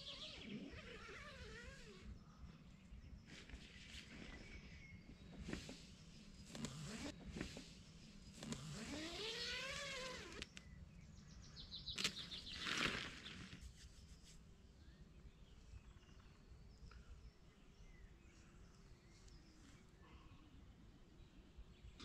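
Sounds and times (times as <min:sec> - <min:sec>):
bird trill: 0:00.0 - 0:01.8
bird chirps: 0:00.0 - 0:06.7, 0:08.0 - 0:14.2.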